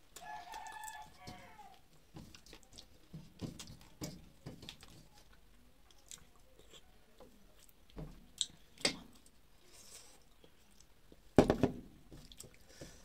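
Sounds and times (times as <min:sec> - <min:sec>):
person chewing: 0:05.9 - 0:06.9, 0:12.2 - 0:12.8.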